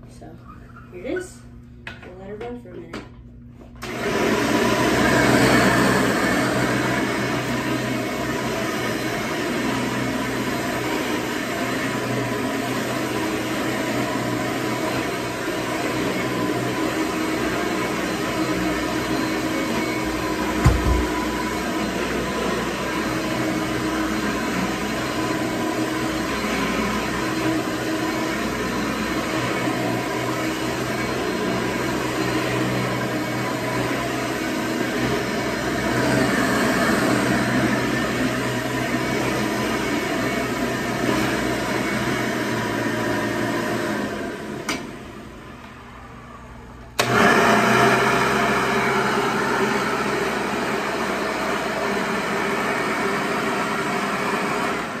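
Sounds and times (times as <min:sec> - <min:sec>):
vacuum cleaner running on carpet: 0:03.8 - 0:46.3, 0:47.0 - 0:55.0
low thump: 0:20.6 - 0:21.2.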